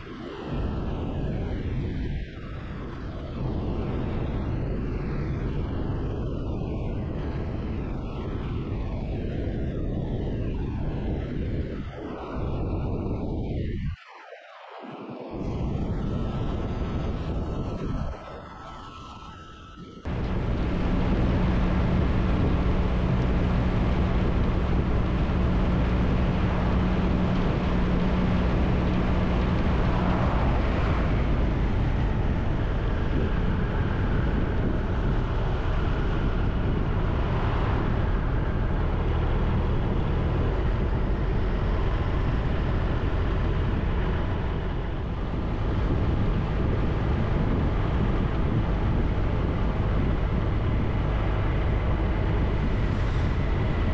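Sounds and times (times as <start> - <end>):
wind and road noise: 0.0 - 53.9
motorcycle engine running: 20.1 - 33.5.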